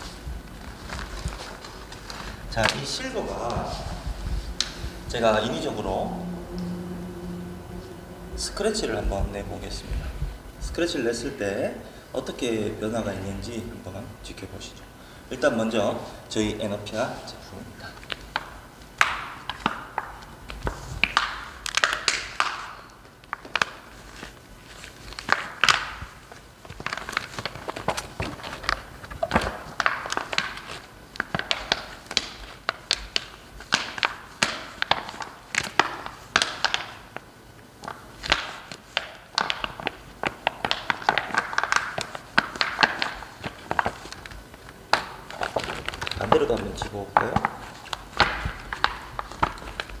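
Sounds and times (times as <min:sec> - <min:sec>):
plastic film crinkling: 0:00.0 - 0:08.6, 0:15.3 - 0:50.0.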